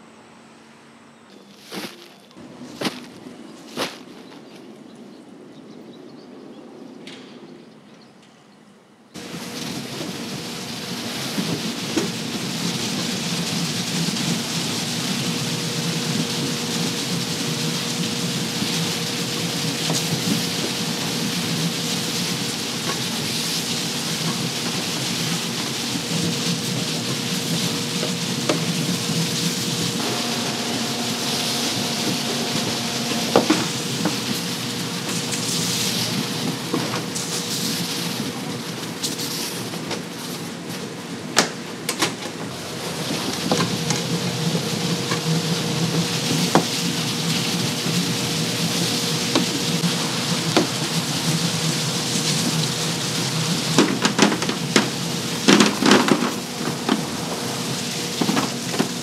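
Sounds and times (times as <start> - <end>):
machine hum: 9.2 - 39.0, 40.8 - 59.0
water jets spraying: 9.2 - 41.0, 42.3 - 59.0.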